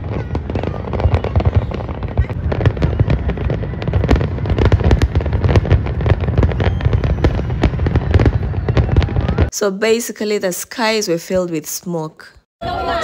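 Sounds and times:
fireworks cracking and banging: 0.0 - 9.5.

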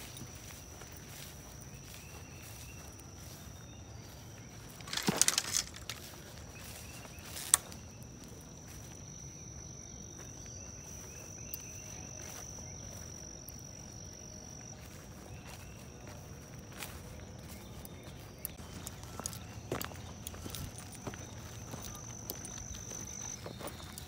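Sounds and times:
phone rustling through grass: 0.0 - 9.0
insect trill: 0.0 - 24.0
outdoor background noise: 0.0 - 24.0.

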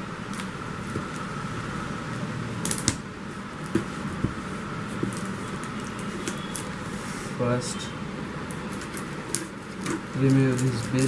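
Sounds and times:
steady background hum: 0.0 - 11.0
cardboard parcel knocks and clicks: 3.6 - 6.5.

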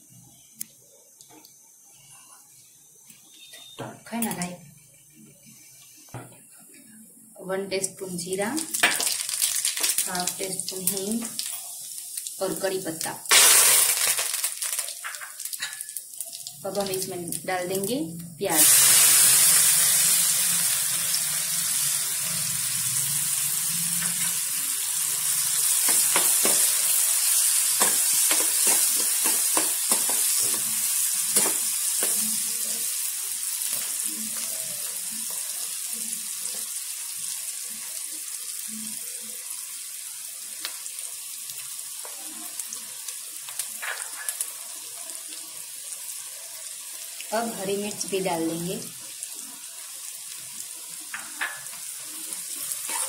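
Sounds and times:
onion sizzling in hot oil: 7.6 - 53.0
metal spoon scraping pan: 52.8 - 53.0.

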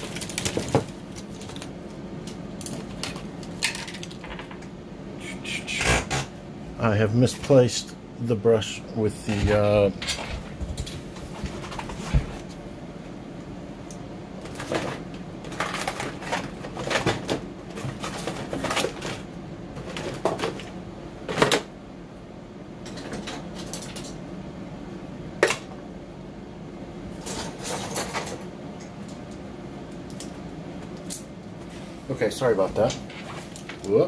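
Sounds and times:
tools clattering and scraping: 27.1 - 28.5.

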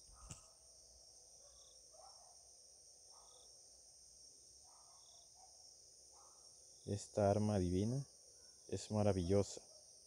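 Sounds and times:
faint high-pitched hiss: 0.0 - 10.0.

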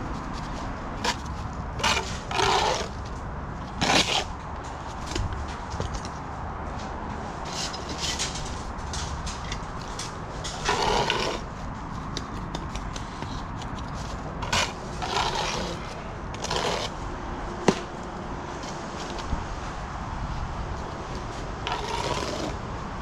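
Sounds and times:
trowel scraping mortar: 0.1 - 3.0, 3.7 - 5.0, 9.8 - 11.6, 12.2 - 17.0, 21.6 - 22.6
bricks being handled: 7.4 - 17.0.

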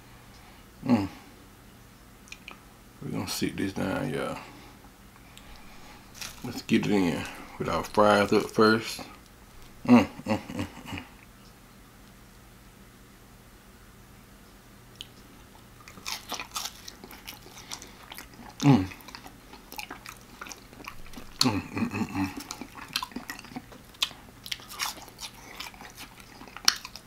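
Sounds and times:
chewing and mouth smacking: 2.2 - 2.6, 5.3 - 9.9, 14.9 - 27.0
low hums: 3.0 - 11.3.

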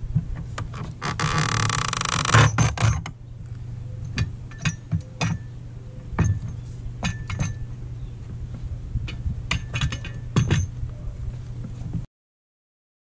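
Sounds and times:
steady low hum: 0.0 - 12.1
metal bar clinking on wood: 4.1 - 5.5.

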